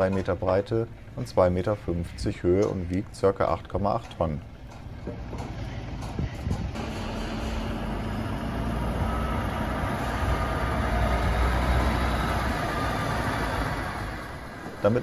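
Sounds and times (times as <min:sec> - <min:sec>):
truck diesel engine: 0:04.5 - 0:15.0.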